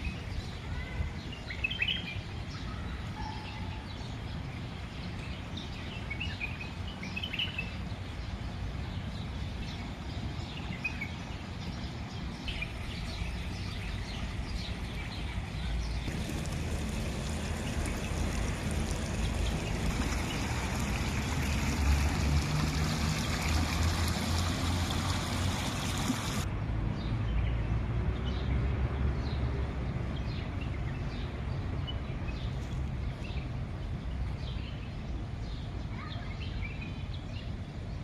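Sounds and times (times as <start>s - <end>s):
water trickling in stream: 4.3s - 26.6s.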